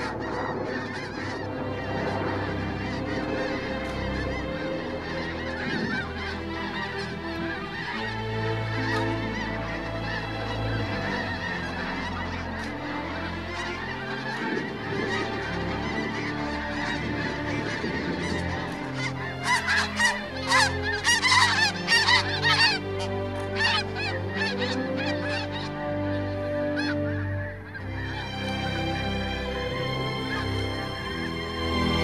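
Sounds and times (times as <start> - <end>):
snow geese honking: 0.0 - 32.0.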